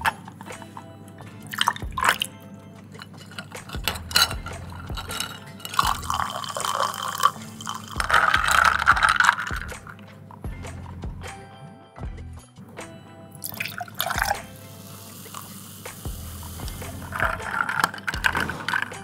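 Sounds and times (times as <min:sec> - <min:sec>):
background music: 0:00.0 - 0:19.0
liquid poured over ice: 0:01.4 - 0:02.3, 0:03.0 - 0:09.9, 0:13.4 - 0:19.0
ice clinking in glass: 0:01.4 - 0:10.0, 0:13.4 - 0:19.0.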